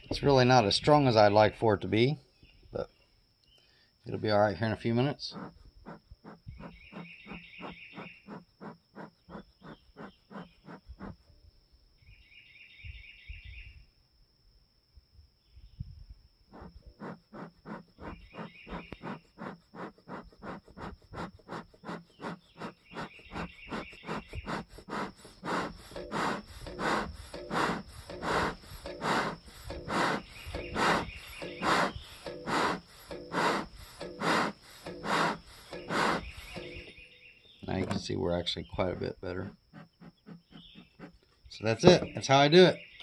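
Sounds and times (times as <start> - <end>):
bellows puffing air: 5.2 - 11.2, 16.5 - 36.9, 38.8 - 42.1.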